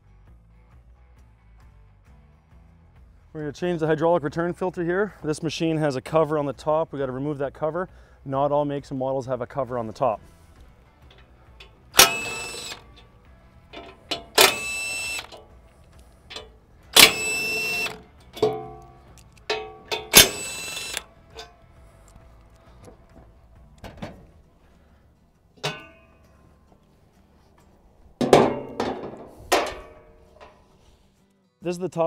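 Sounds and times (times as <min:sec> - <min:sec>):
metal bolts clinking: 0:10.6 - 0:22.2, 0:25.6 - 0:30.7
power driver whining: 0:10.6 - 0:25.0.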